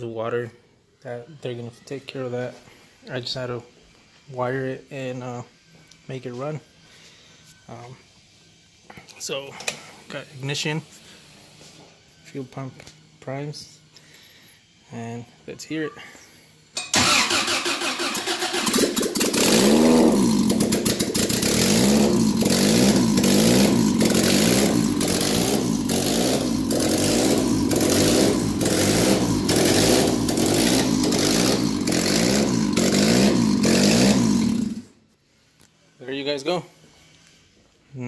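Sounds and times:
engine revving and surging: 18.6s - 34.8s.

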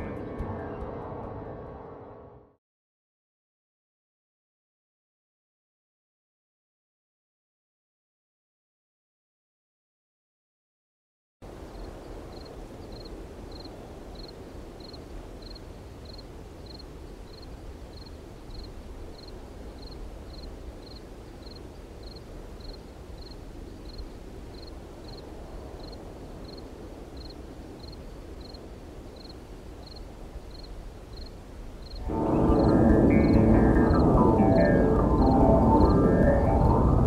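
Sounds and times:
low rushing noise: 11.4s - 37.0s.

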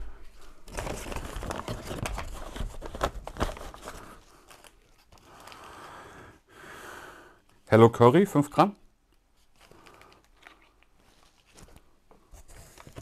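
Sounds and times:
paper bag rustling: 0.4s - 5.5s.

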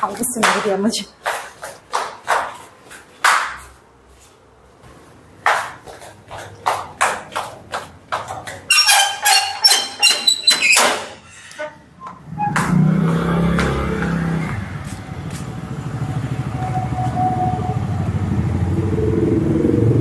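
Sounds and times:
footsteps knocking: 0.0s - 3.8s, 4.8s - 11.2s, 12.0s - 15.6s
metal gate clanking open: 8.7s - 11.7s.

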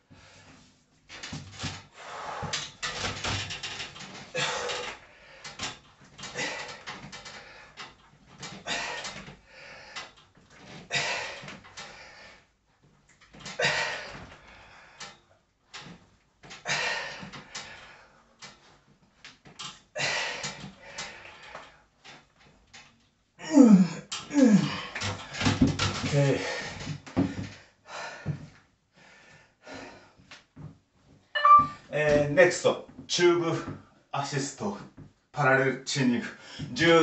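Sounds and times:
strained breathing: 0.0s - 0.8s, 1.8s - 3.1s, 4.2s - 8.0s, 8.6s - 12.5s, 13.6s - 15.9s, 16.6s - 18.8s, 20.0s - 22.0s, 26.3s - 30.3s, 36.3s - 36.7s
man groaning: 23.4s - 24.9s.

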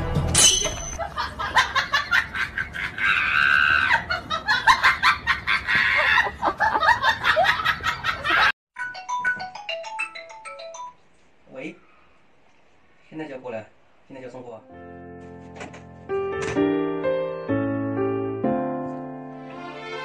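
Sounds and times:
bursts of laughter: 1.0s - 8.5s
phone ringtone tune: 8.8s - 11.0s.

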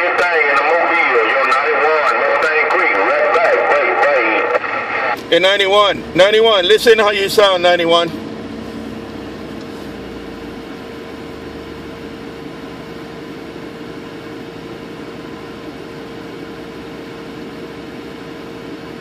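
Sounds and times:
radio static hiss: 0.0s - 5.9s.

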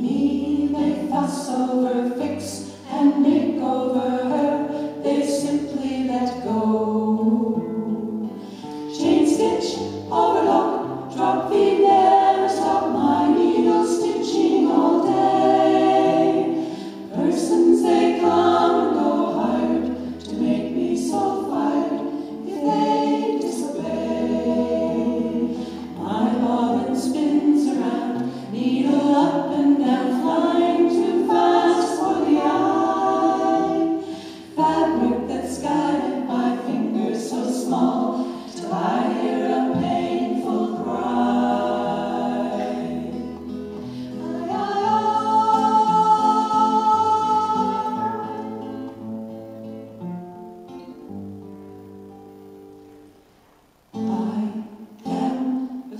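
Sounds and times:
women singing in close harmony: 0.0s - 49.1s, 54.0s - 55.9s
acoustic guitar: 0.0s - 55.9s.

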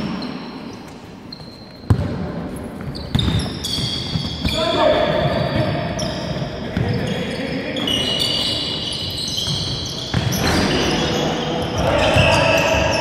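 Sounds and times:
basketball bouncing on wooden court: 1.4s - 7.1s, 9.3s - 10.7s.

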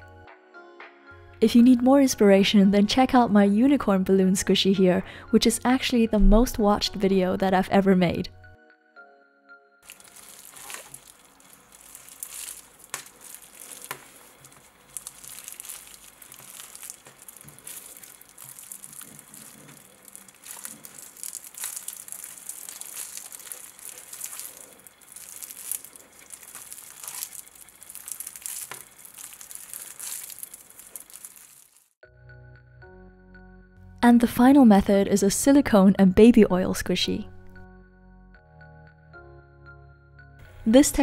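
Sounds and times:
stress balls squishing and crinkling: 9.8s - 32.0s.

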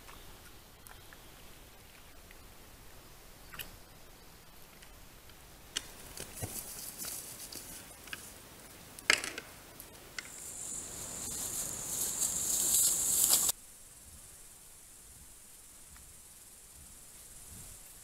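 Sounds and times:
insects chirring: 5.8s - 13.6s
animals rustling in dry leaves: 5.9s - 8.9s, 10.3s - 13.6s.

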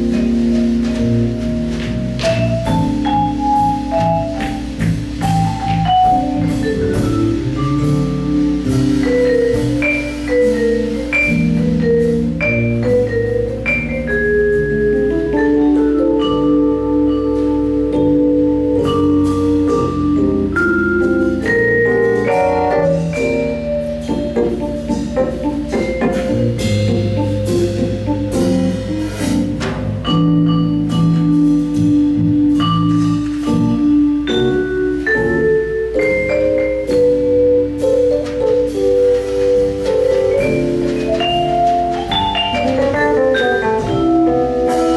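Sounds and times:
bass line: 0.0s - 44.9s
electric keyboard chords: 0.0s - 44.9s
light drums: 0.0s - 44.9s
vibraphone notes: 0.0s - 44.9s.

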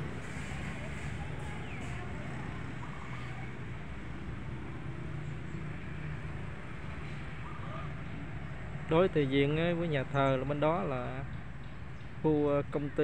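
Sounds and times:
distant road traffic hum: 0.0s - 13.0s.

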